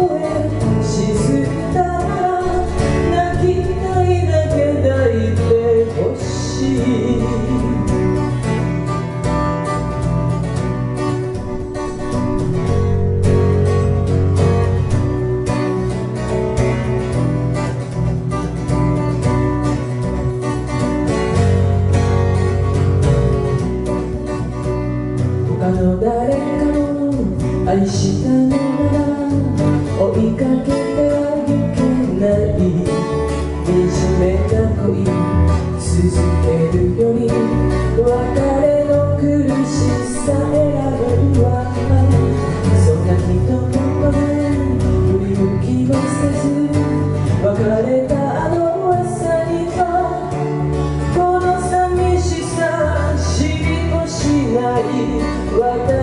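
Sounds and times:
woman singing: 0.0 - 8.4, 25.5 - 56.0
acoustic guitar: 0.0 - 56.0
bass guitar: 0.0 - 56.0.

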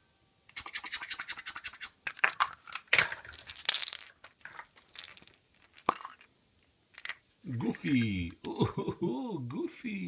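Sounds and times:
plastic eggs rustling: 2.0 - 8.5
plastic capsule snapping open: 2.1 - 6.3.

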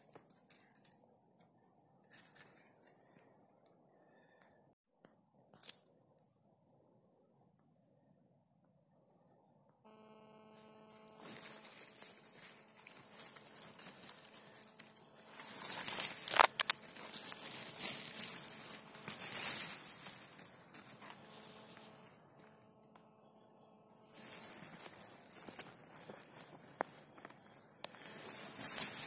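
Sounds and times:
pine needles and twigs rustling: 0.0 - 1.0, 2.0 - 3.3, 5.6 - 5.9, 10.0 - 29.0
faint steady hum: 6.1 - 29.0.

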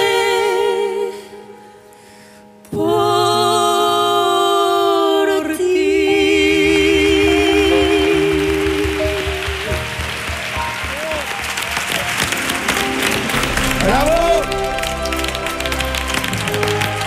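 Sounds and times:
woman and man singing in harmony: 0.0 - 1.6, 2.7 - 9.5
piano: 0.0 - 17.0
cajon: 7.4 - 17.0.

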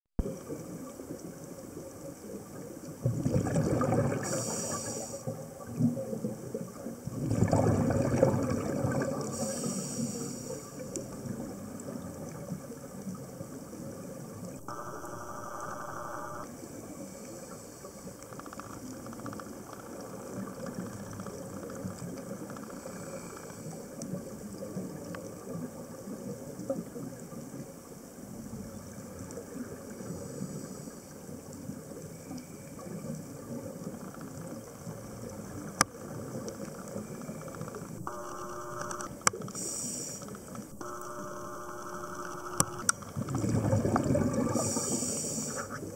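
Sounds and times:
exhaled bubbles gurgling: 0.2 - 15.8, 18.8 - 45.9
low underwater wash: 0.2 - 45.9.

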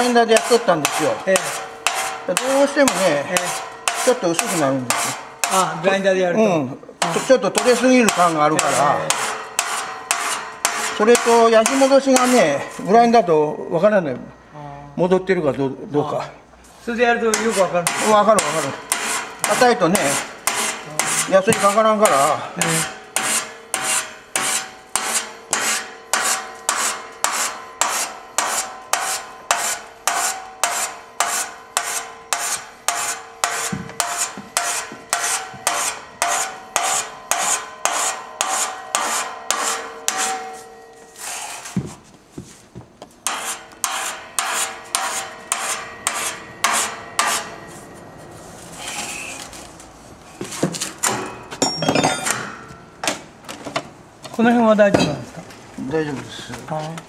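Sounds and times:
hand file rasping on steel: 0.0 - 5.8, 7.0 - 12.9, 17.3 - 41.8, 43.2 - 47.5
faint steady ring: 8.9 - 14.6, 23.0 - 41.8, 44.1 - 48.7.

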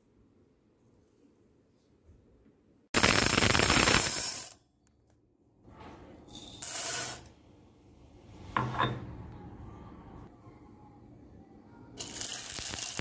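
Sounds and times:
dry chickpeas rattling in steel vessel: 12.0 - 13.0.

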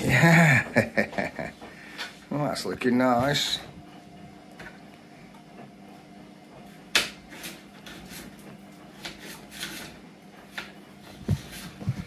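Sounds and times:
knife cutting pepper: 6.9 - 11.7.

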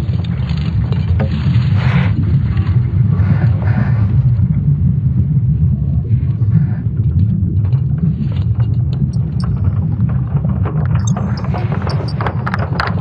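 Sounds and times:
deep steady rumble: 0.0 - 13.0
crackles: 6.4 - 13.0.

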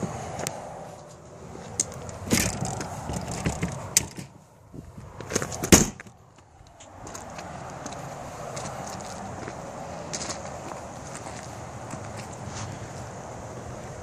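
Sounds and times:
footsteps crunching on gravel: 4.8 - 13.1.

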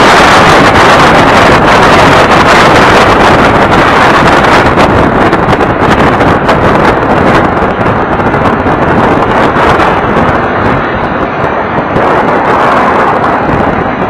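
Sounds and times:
hull on water: 0.0 - 14.0
outboard motor rushing: 0.0 - 14.0
wind buffeting microphone: 0.0 - 14.0.

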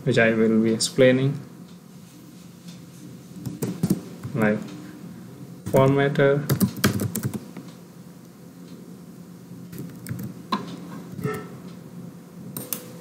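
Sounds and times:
faint room hum: 0.0 - 13.0
computer keyboard keystrokes: 5.8 - 7.4, 9.8 - 10.4.

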